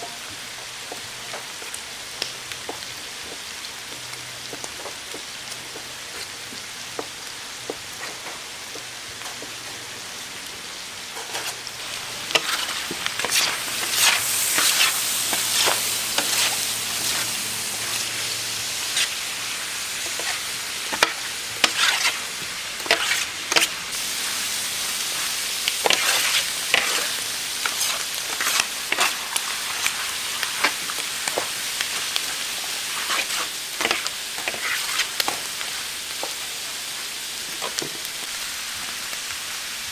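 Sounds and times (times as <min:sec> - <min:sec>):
meat sizzling on a griddle: 0:00.0 - 0:39.9
metal scraper scraping griddle: 0:12.3 - 0:17.3, 0:20.1 - 0:22.2, 0:22.8 - 0:23.7, 0:25.8 - 0:29.2.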